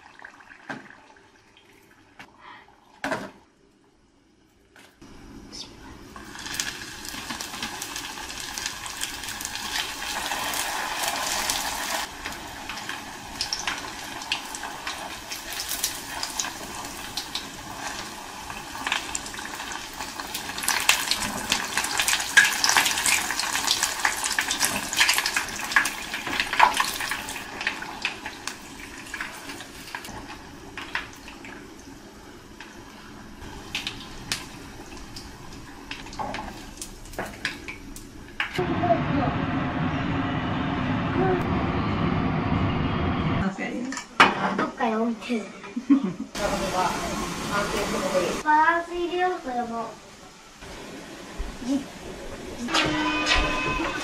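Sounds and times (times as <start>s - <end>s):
hot oil sizzling and crackling: 6.0s - 38.6s, 46.4s - 54.0s.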